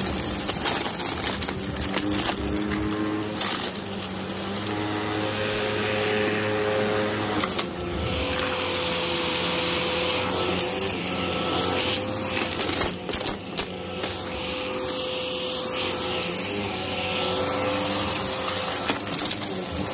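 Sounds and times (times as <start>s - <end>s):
debris clicking in vacuum: 0.0s - 4.9s, 10.4s - 14.8s, 17.5s - 19.9s
vacuum cleaner running on rug: 0.0s - 19.9s.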